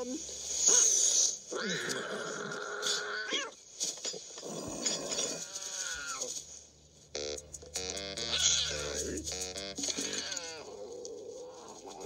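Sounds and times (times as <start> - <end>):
cartoon cat yowling: 8.3 - 9.0, 10.0 - 10.7.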